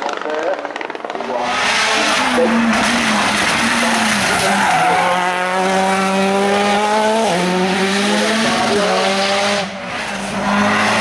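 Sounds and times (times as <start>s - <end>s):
race car engine at high revs: 0.0s - 11.0s
tyres squealing: 2.0s - 6.0s.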